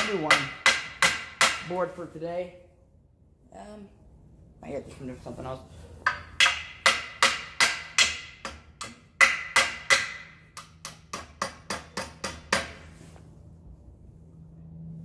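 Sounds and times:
hammer driving nails into wood: 0.0 - 1.8, 6.1 - 12.8.

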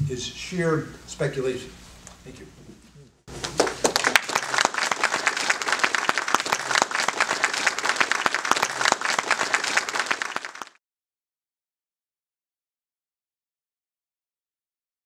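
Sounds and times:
audience applauding: 3.3 - 10.8.

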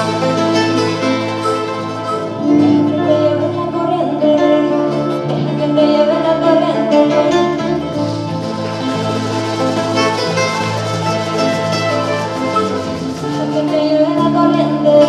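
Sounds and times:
small stringed instrument strummed: 0.0 - 15.0
woman singing: 2.2 - 8.4, 13.2 - 15.0.

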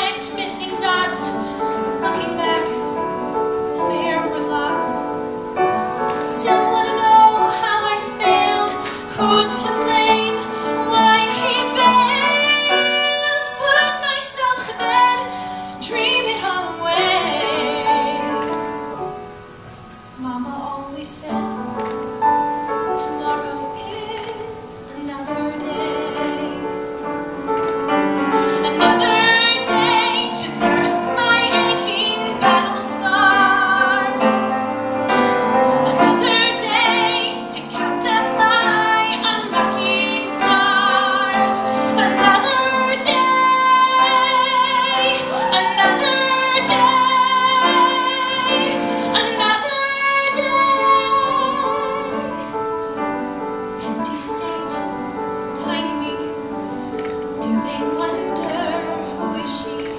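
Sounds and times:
woman singing a ballad: 0.0 - 5.4, 6.2 - 18.7, 20.2 - 27.0, 28.4 - 59.9
instrumental accompaniment: 21.3 - 59.9.

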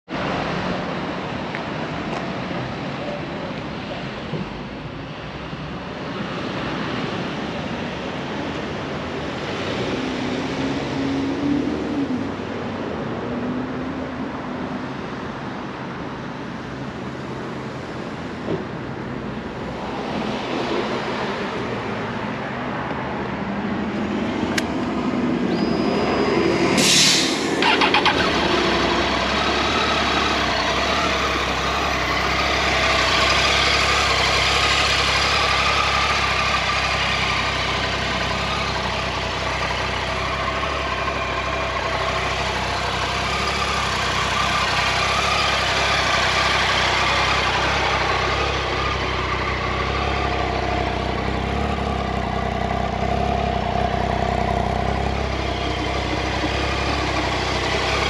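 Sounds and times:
motorcycle engine idling: 27.6 - 58.0.

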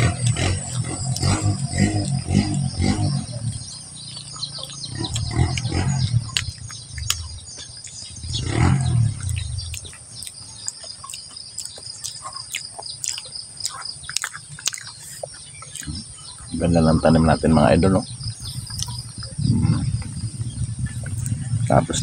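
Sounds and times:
low rumbling: 0.0 - 10.6, 15.5 - 22.0
birds chirping: 0.0 - 22.0.

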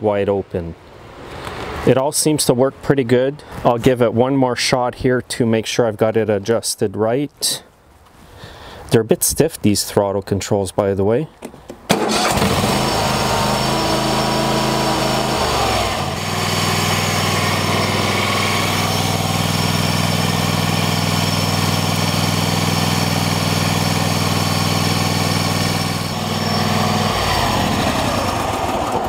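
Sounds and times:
lawn tractor engine running: 11.4 - 29.0.

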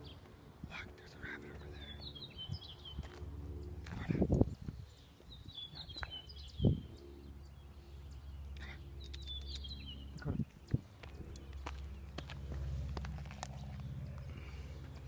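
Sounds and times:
birds chirping: 0.0 - 15.0
low steady rumble: 0.0 - 15.0.

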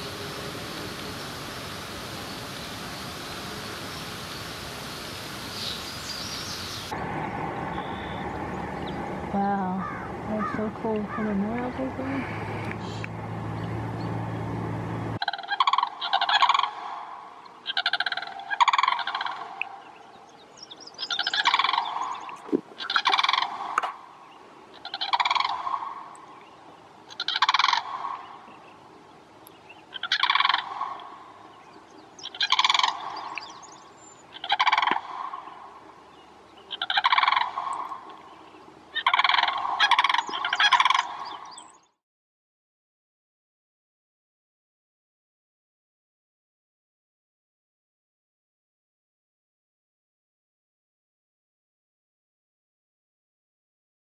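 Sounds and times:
cranes rattling calls: 9.8 - 11.3, 15.2 - 17.0, 17.6 - 19.6, 21.1 - 22.2, 22.8 - 24.0, 24.7 - 26.1, 27.1 - 28.5, 29.9 - 31.3, 32.2 - 33.6, 34.3 - 35.7, 36.7 - 38.2, 38.9 - 41.6.

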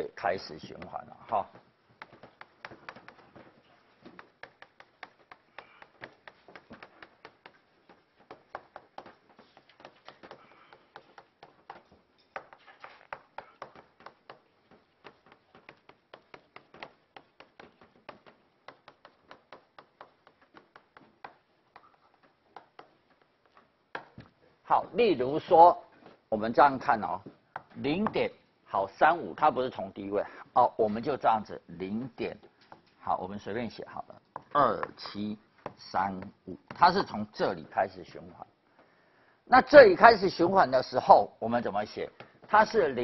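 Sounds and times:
chalk tapping and scratching: 0.2 - 24.4, 32.2 - 37.9.

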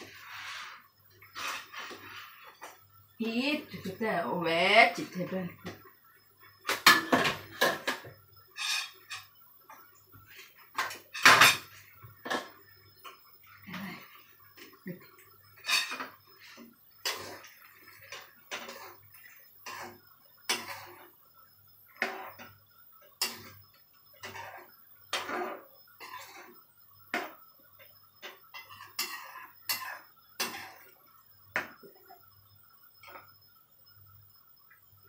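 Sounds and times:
metal spoon scraping frying pan: 0.0 - 2.6, 8.6 - 9.3, 15.6 - 21.1, 22.0 - 22.5, 23.2 - 27.4, 28.2 - 31.0.

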